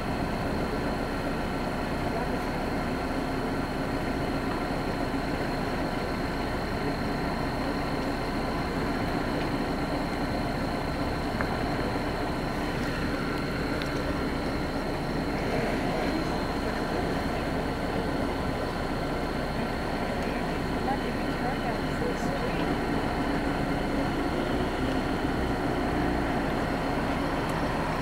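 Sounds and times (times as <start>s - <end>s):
engine-like rumble idling: 0.0s - 28.0s
thin high steady tone: 0.0s - 28.0s.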